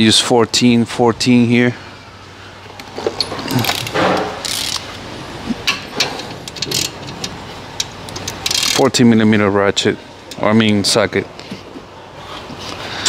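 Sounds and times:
socket ratchet clicking: 3.2s - 4.9s, 5.7s - 8.9s.

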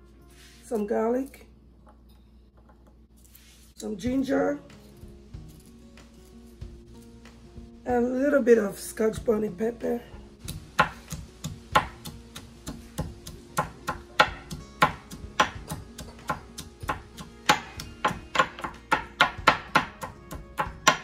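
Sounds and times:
pestle pounding in a marble mortar: 10.4s - 21.0s.

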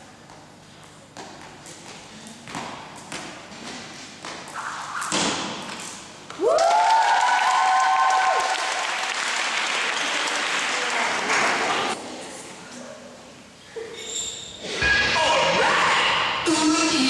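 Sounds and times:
skipping rope tapping floor: 1.2s - 6.4s
clapping and cheering: 6.3s - 12.0s
spectators whooping: 6.4s - 8.9s.

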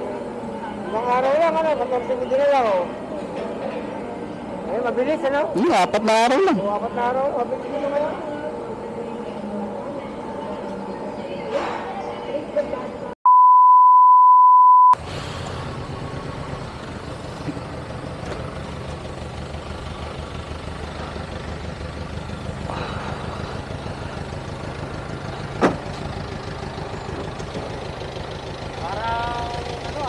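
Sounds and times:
test-tone beep: 13.3s - 15.0s
motorcycle engine idling: 15.3s - 30.0s.

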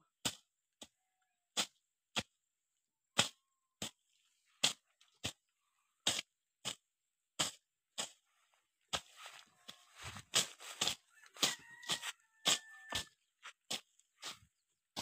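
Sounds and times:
machete swishing through grass: 8.9s - 13.1s.

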